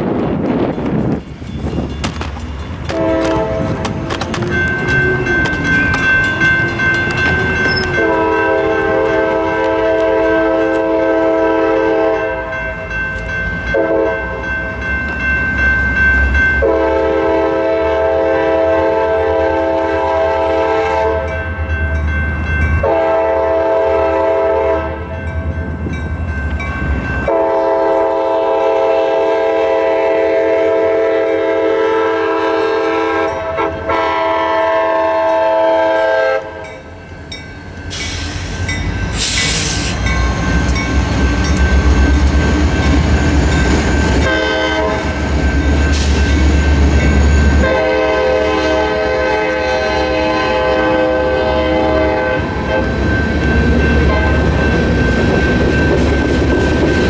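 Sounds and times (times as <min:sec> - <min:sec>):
crossing bells ringing: 0:00.6 - 0:19.4, 0:20.0 - 0:57.0
locomotive air horn blowing: 0:02.9 - 0:03.9, 0:07.3 - 0:12.5, 0:13.7 - 0:14.4, 0:16.6 - 0:21.4, 0:22.8 - 0:25.1, 0:27.3 - 0:36.8, 0:44.2 - 0:45.2, 0:47.5 - 0:53.0, 0:54.1 - 0:54.6.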